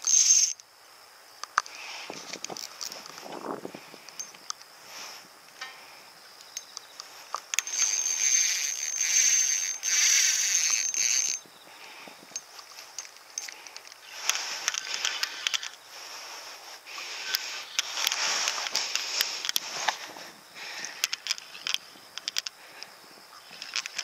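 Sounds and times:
fishing reel buzzing: 0.0 - 0.6, 7.5 - 12.0, 13.0 - 19.6
reel ticking: 7.5 - 11.4.

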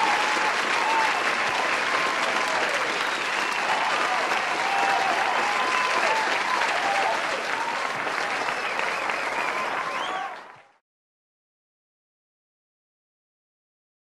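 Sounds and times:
crowd cheering and shouting: 0.0 - 10.8
crowd clapping: 0.0 - 10.8.

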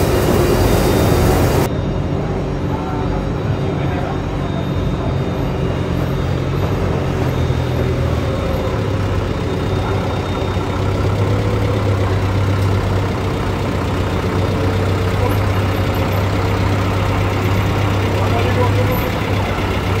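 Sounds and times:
forklift engine running: 0.0 - 20.0.

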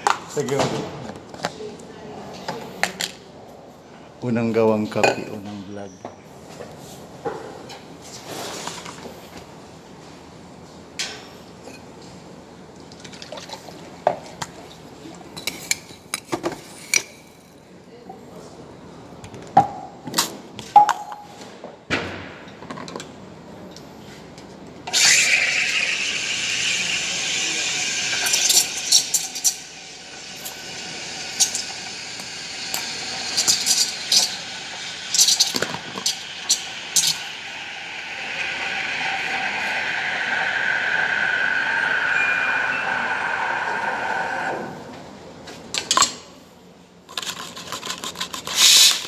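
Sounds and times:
steam wand hissing: 24.9 - 44.9, 48.6 - 49.0
whistling milk steaming: 24.9 - 45.1, 48.6 - 49.0
metal milk pitcher clinking: 25.0 - 39.8.

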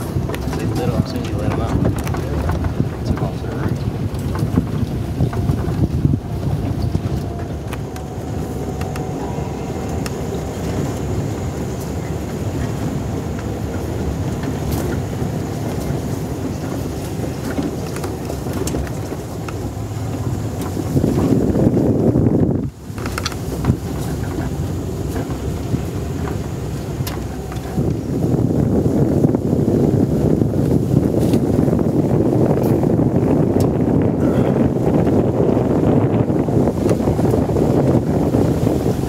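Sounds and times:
knocks and rattles: 0.0 - 9.1
vehicle engine running: 0.0 - 39.0
wind on microphone: 0.0 - 39.0.

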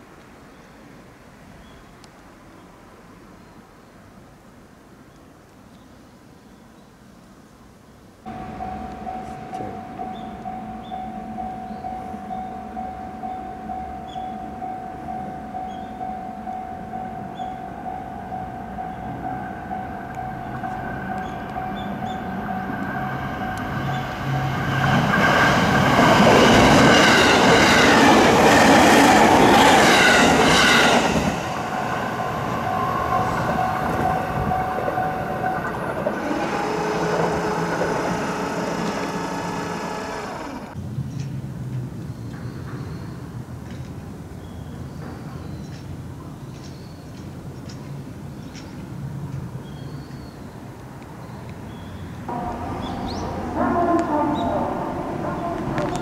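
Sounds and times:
level crossing bell ringing: 8.3 - 23.6.

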